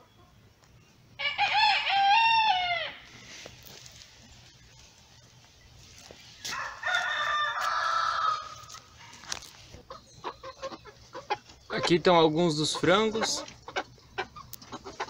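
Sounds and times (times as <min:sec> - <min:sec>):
rooster crowing: 0:01.2 - 0:03.1, 0:06.5 - 0:08.7
chicken clucks: 0:03.7 - 0:15.0.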